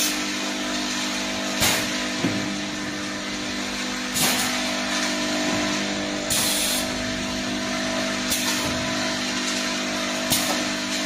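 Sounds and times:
machine humming: 0.0 - 11.0
air hissing: 6.3 - 7.0.

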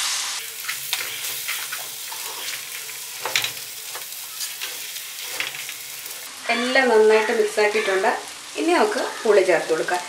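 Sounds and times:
food sizzling in pot: 0.0 - 10.0
spatula scraping a pot: 0.6 - 6.2.

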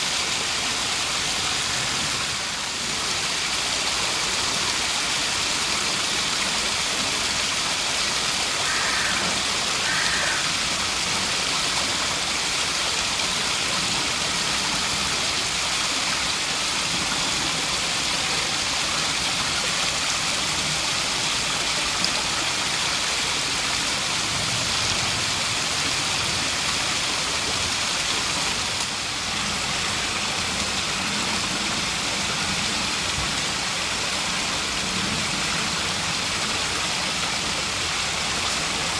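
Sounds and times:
waterfall over rocks: 0.0 - 38.9.

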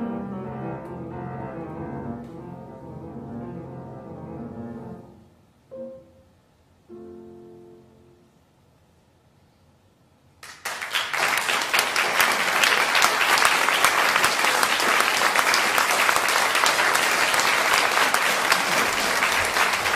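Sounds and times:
audience applause: 10.4 - 19.9.

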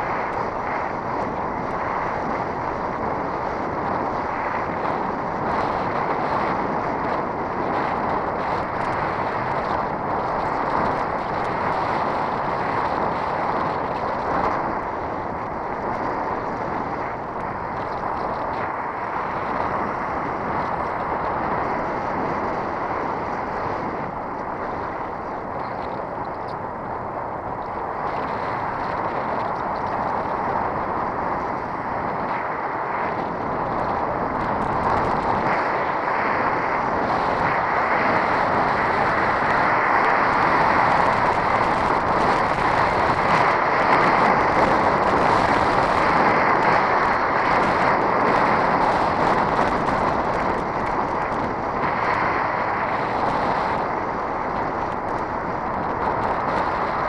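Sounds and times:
tyre noise on asphalt: 0.0 - 57.0
wind rushing over microphone: 0.0 - 57.0.

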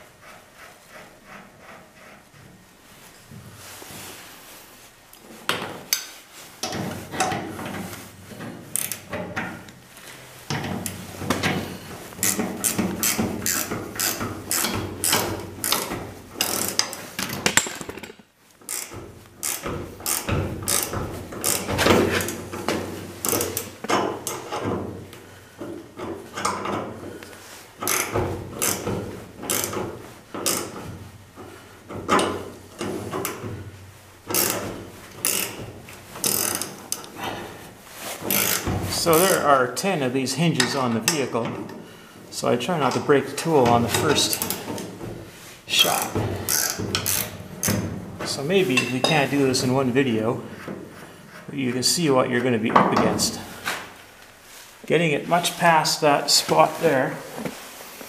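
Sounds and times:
ratcheting wrench clicking: 12.2 - 22.4, 27.8 - 28.9, 29.5 - 29.8, 34.3 - 35.6, 36.2 - 37.1, 38.3 - 38.7, 45.9 - 47.8.

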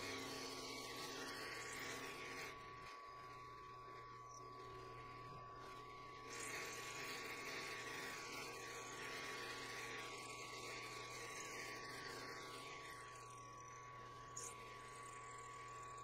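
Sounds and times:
high motor whine: 0.0 - 16.0.

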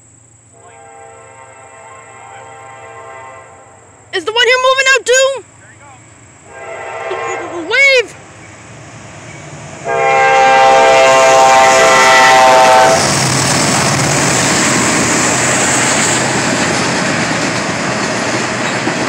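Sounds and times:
train rumbling and clattering past: 0.0 - 19.0
locomotive air horn blast: 0.5 - 4.1, 6.5 - 8.0, 9.8 - 13.9.

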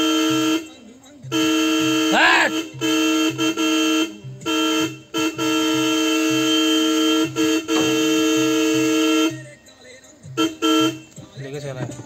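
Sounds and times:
vehicle horn honking: 0.0 - 0.7, 1.3 - 9.4, 10.4 - 11.1.

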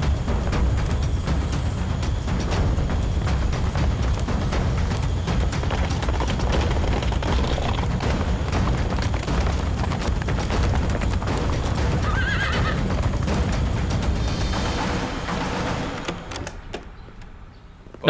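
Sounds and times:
horses galloping: 0.0 - 16.8
horse whinnying: 11.6 - 13.1.

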